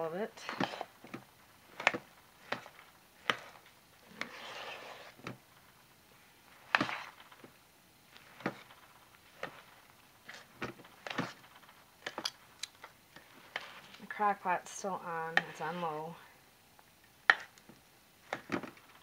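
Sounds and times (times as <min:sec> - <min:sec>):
gritty scraping rustle: 0:01.8 - 0:05.8, 0:13.2 - 0:16.3.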